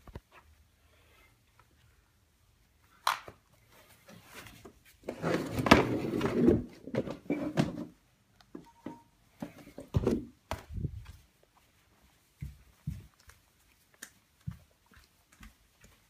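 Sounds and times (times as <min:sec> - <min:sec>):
objects rustling and knocking: 0:03.6 - 0:11.6.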